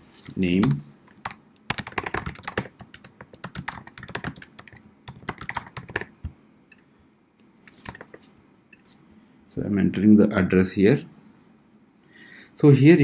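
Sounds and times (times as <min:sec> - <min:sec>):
typing on computer keyboard: 0:00.6 - 0:06.4, 0:07.8 - 0:08.2.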